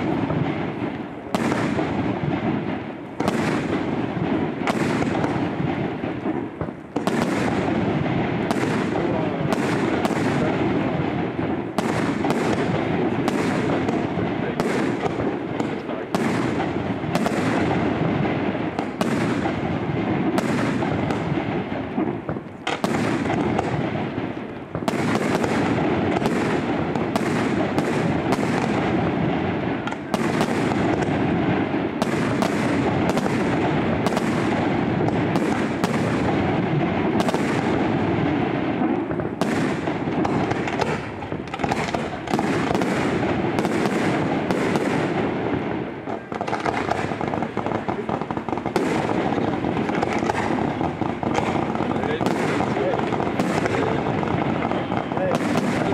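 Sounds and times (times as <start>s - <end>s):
fireworks bangs: 0.0s - 55.9s
fireworks crackle: 0.0s - 55.9s.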